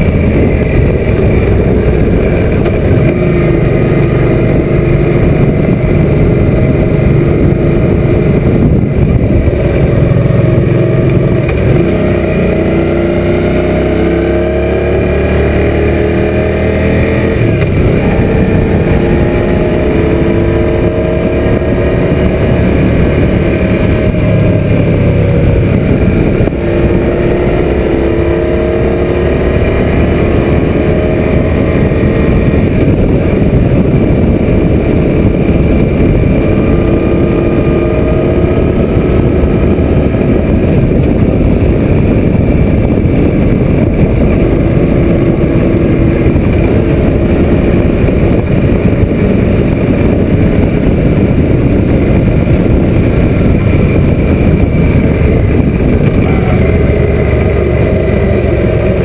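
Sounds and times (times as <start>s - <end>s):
motorcycle engine running: 0.0s - 59.0s
wind noise on microphone: 0.0s - 59.0s.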